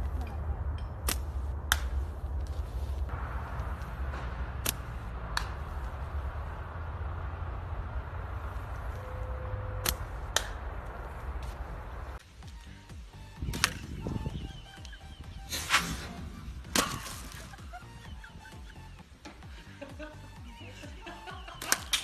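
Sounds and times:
steady low rumble: 0.0 - 21.6
slingshot cracks: 1.0 - 2.0, 4.1 - 5.9, 9.8 - 10.7, 16.7 - 17.5.

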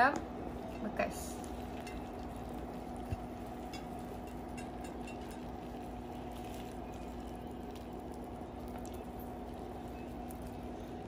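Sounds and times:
background hum: 0.0 - 11.0.

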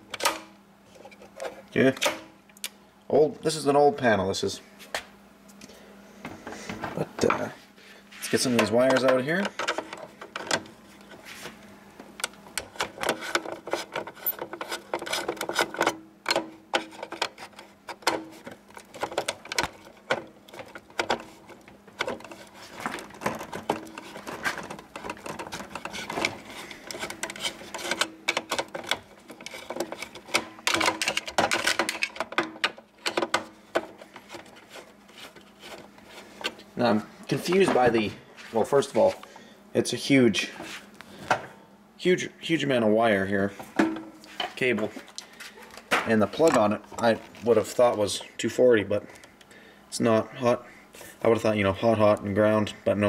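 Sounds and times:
faint steady hum: 0.0 - 53.0
tools and wiring clattering: 8.4 - 11.2, 12.2 - 38.2, 43.7 - 48.3.

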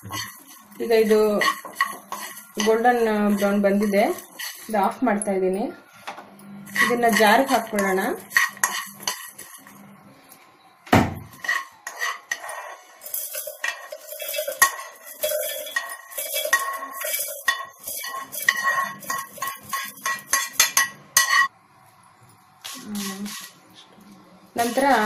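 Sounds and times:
metal spoon scraping a pan: 0.0 - 5.3, 6.6 - 9.8, 11.3 - 21.5, 22.7 - 23.6, 24.6 - 25.0.

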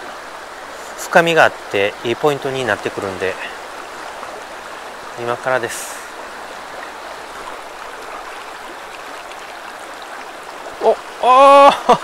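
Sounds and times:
stream rushing over rocks: 0.0 - 12.0
man exclaiming: 10.8 - 12.0.

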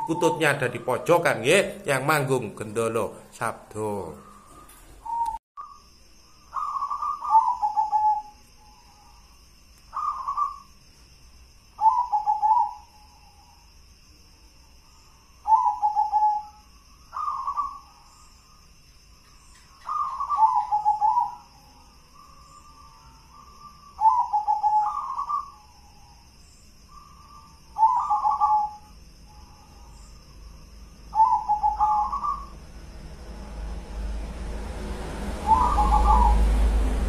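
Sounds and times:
dove cooing: 0.0 - 1.6, 4.2 - 5.4, 6.6 - 9.1, 10.0 - 10.7, 11.8 - 13.5, 15.4 - 18.1, 19.8 - 26.2, 26.9 - 30.0, 31.1 - 32.6, 35.4 - 36.6.

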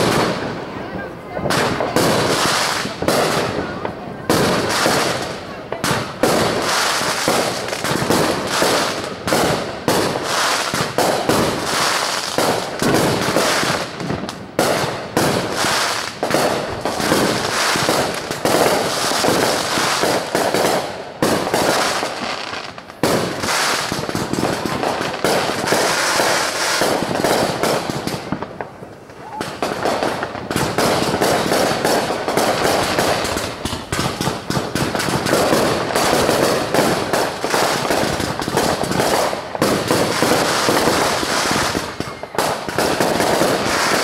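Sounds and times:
distant fireworks bangs and crackles: 0.0 - 44.0.

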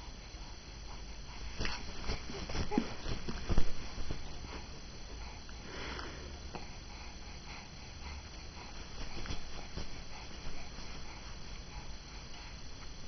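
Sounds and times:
thumps and rustles on quilt: 1.5 - 4.7, 8.7 - 11.7.

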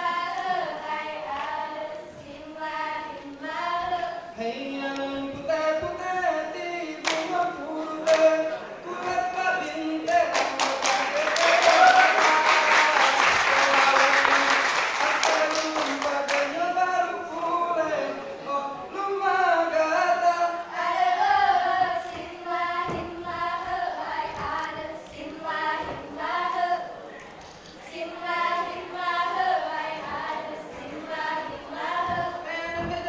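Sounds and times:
group singing a cappella: 0.0 - 33.0
rapid dense clapping: 7.0 - 8.4, 10.0 - 16.6, 22.1 - 26.7.

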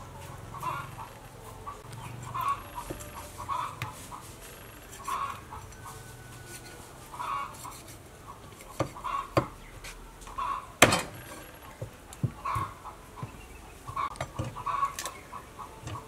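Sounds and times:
knife chopping on wooden board: 8.7 - 9.5.

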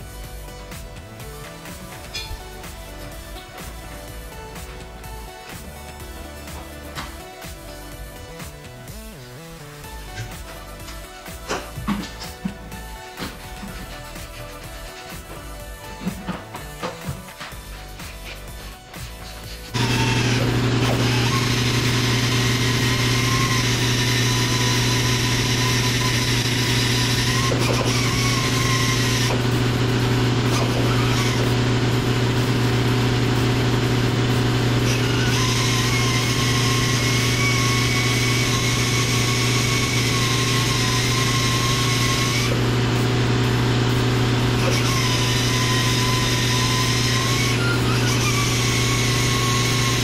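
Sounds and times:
engine running steadily: 19.7 - 50.0
high whine: 19.7 - 50.0.

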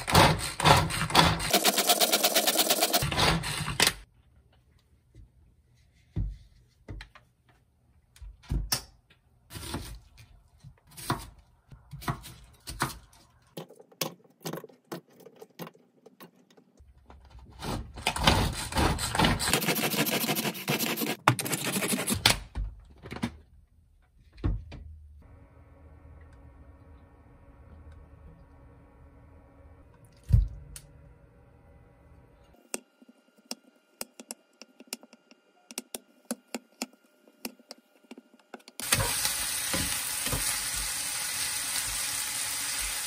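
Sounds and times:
food chopper blades rattling: 0.0 - 3.8.

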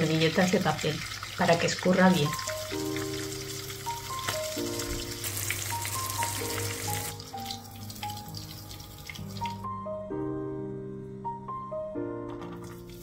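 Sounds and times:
fish frying in hot oil: 0.0 - 9.7
soft background music: 1.6 - 13.0.

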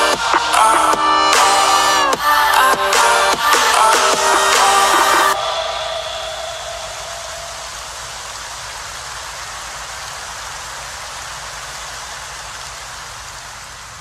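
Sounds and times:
music: 0.0 - 6.6
steady rain-like hiss: 0.0 - 14.0.

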